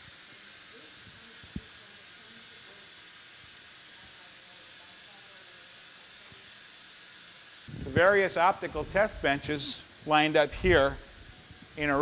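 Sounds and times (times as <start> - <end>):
steady background hiss: 7.4 - 12.0.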